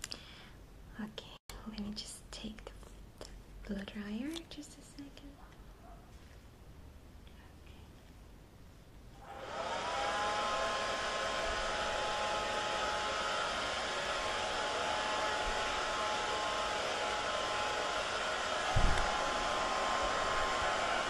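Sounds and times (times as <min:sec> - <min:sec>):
blow dryer air rush: 0:09.2 - 0:21.0
blow dryer motor whine: 0:09.2 - 0:21.0.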